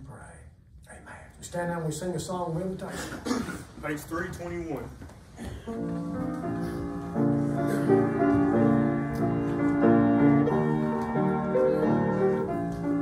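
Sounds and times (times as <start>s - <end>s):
piano playing hymn: 5.5s - 13.0s.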